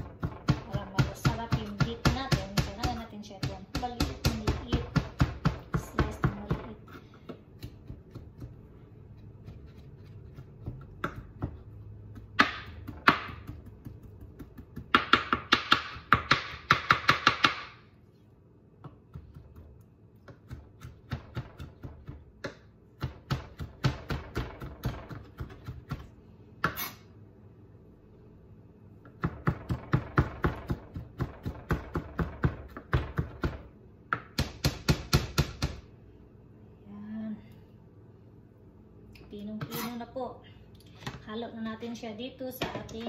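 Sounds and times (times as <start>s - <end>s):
knife chopping on plastic board: 0.0s - 8.6s, 9.2s - 17.8s, 18.8s - 27.0s, 29.0s - 35.8s.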